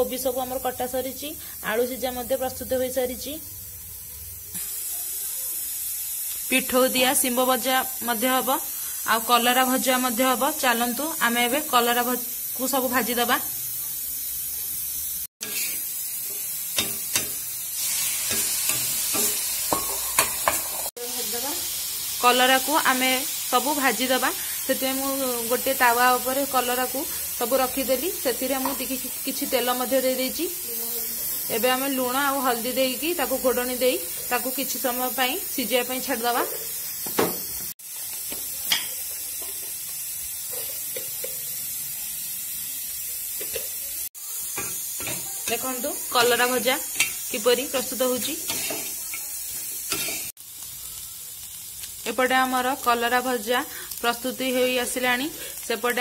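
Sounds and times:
slices sizzling in hot oil: 0:00.0 - 0:56.0
metal spatula scraping pan: 0:15.4 - 0:15.9, 0:48.4 - 0:49.0, 0:49.9 - 0:50.3.

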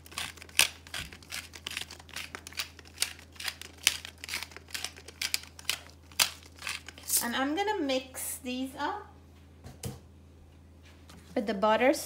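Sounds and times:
pepper grinder crunching: 0:00.0 - 0:07.3.

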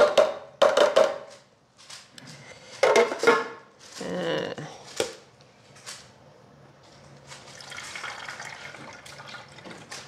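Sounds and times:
juice trickling into bottle: 0:07.4 - 0:10.0.

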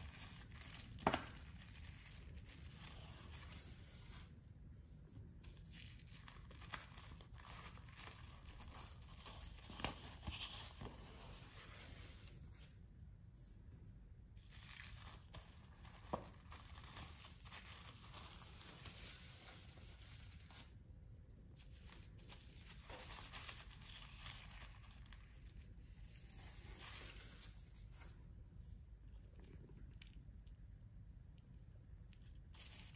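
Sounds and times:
sharp plastic crackles: 0:00.0 - 0:02.8
plastic wrapping crinkling: 0:00.0 - 0:04.3, 0:05.4 - 0:11.7, 0:14.4 - 0:20.8, 0:21.6 - 0:28.0, 0:32.1 - 0:32.9.

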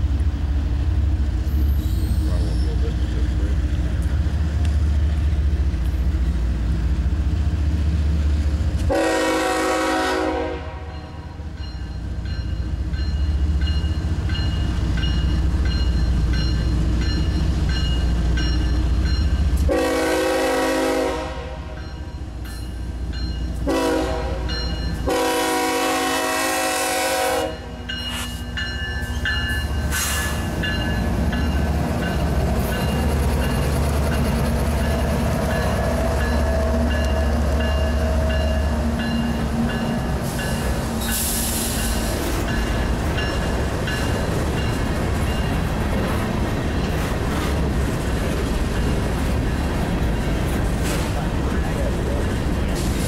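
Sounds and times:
locomotive rumbling: 0:00.0 - 0:53.0
locomotive air horn blasts: 0:08.9 - 0:10.9, 0:19.7 - 0:21.8, 0:23.6 - 0:27.8
faint crossing bell ringing: 0:10.9 - 0:19.5, 0:21.8 - 0:23.6, 0:24.5 - 0:25.1, 0:27.5 - 0:29.9, 0:41.8 - 0:45.6.

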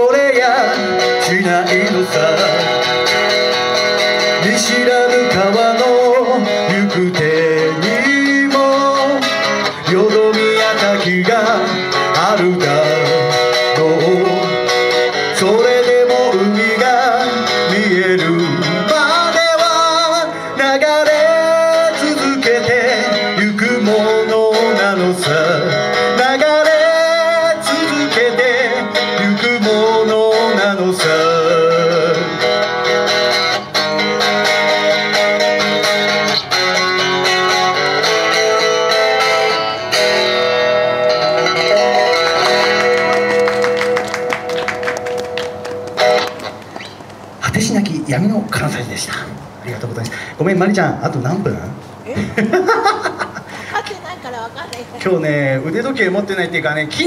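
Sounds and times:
man singing: 0:00.0 - 0:03.0, 0:04.2 - 0:32.5
electric guitar: 0:00.0 - 0:47.7.

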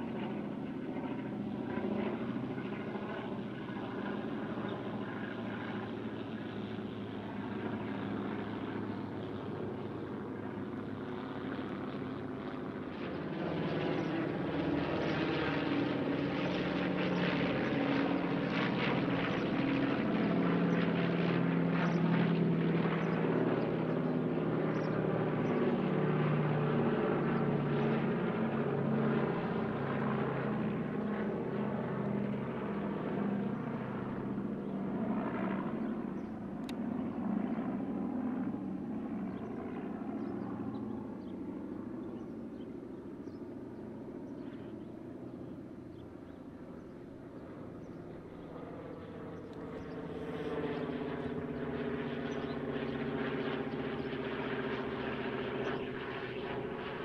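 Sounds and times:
approaching propeller plane engine: 0:00.0 - 0:57.0
propeller plane engines droning overhead: 0:00.0 - 0:57.0.

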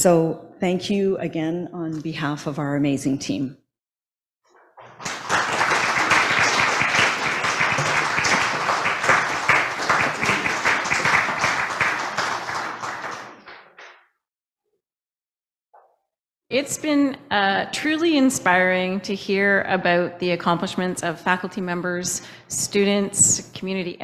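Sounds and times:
audience applauding: 0:04.6 - 0:14.0.

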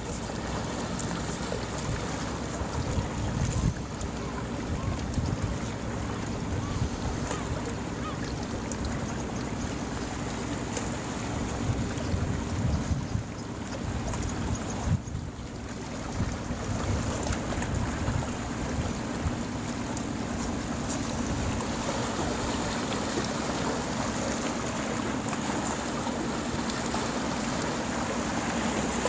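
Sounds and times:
wind buffeting microphone: 0:01.9 - 0:08.2, 0:11.4 - 0:19.4.

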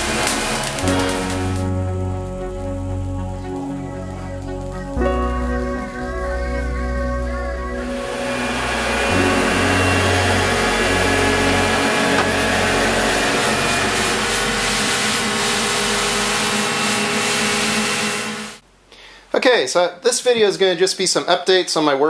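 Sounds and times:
machine whirring with hiss: 0:00.0 - 0:06.6, 0:07.8 - 0:18.6.

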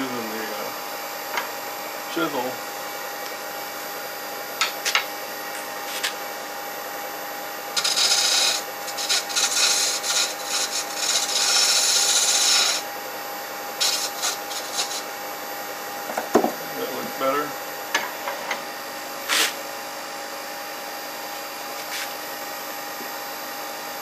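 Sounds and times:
lathe humming: 0:00.1 - 0:19.3
chisel scraping spinning wood: 0:07.7 - 0:12.9, 0:13.7 - 0:15.2.

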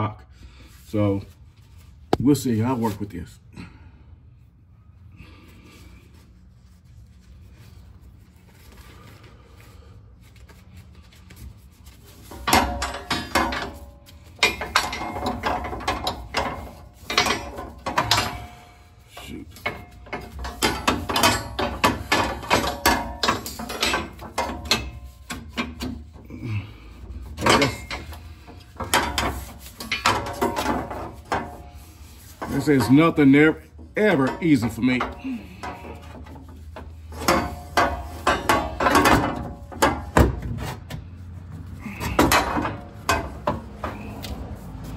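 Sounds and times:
metal scraping and clunking: 0:12.0 - 0:26.3, 0:26.9 - 0:44.9.

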